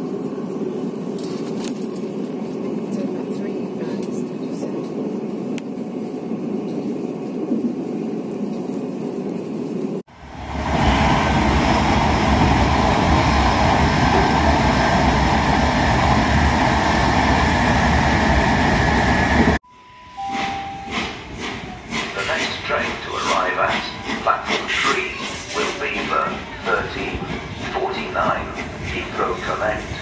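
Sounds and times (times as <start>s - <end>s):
train rumbling past: 0.0s - 19.6s, 20.2s - 30.0s
wheels rumbling on rails: 0.0s - 19.6s, 20.3s - 30.0s
two-note falling chime: 19.6s - 21.2s.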